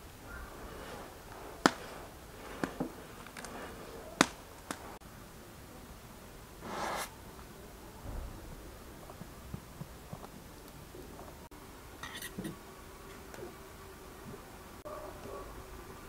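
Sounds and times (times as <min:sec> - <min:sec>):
flatbread scraping on griddle: 0:00.3 - 0:05.0, 0:06.6 - 0:07.1.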